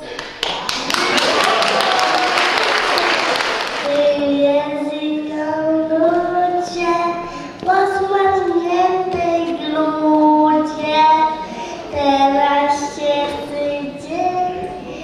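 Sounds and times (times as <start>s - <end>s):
girl singing into a microphone: 3.8s - 15.0s.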